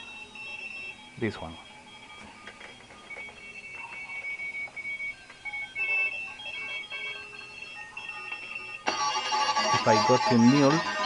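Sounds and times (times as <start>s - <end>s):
morse code beeping tones: 0.0s - 11.0s
loud high-pitched morse station: 3.3s - 11.0s.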